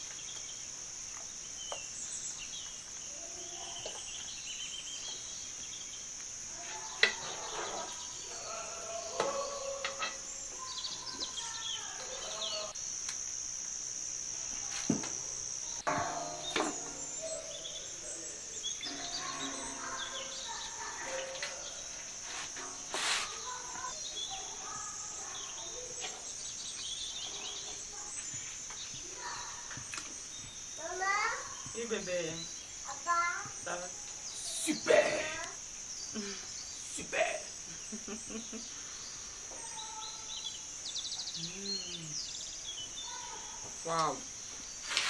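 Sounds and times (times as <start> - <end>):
crickets chirping: 0.0 - 45.0
faint voices: 6.5 - 12.8, 15.8 - 26.4.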